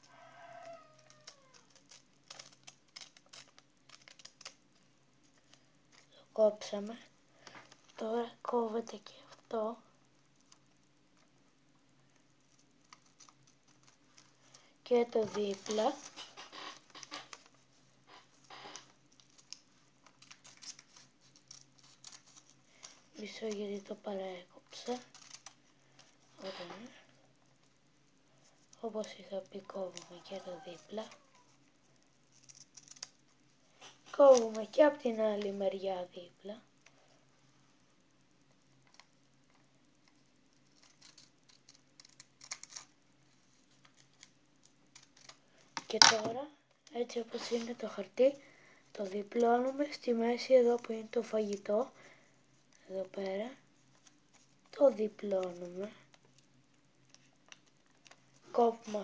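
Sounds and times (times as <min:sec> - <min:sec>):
paper crinkle: 0:00.0 - 0:09.5, 0:12.1 - 0:27.0, 0:28.4 - 0:35.6, 0:38.8 - 0:46.3, 0:47.0 - 0:59.0
scissors snipping paper: 0:00.6 - 0:04.6, 0:19.2 - 0:23.9, 0:24.8 - 0:25.6, 0:32.3 - 0:33.2, 0:40.6 - 0:42.9, 0:44.9 - 0:46.3.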